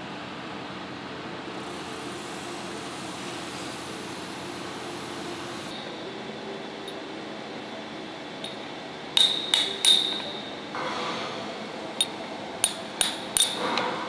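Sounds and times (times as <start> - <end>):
workshop hum: 0.0 - 14.0
metal-on-metal taps: 9.2 - 10.4, 12.0 - 13.9.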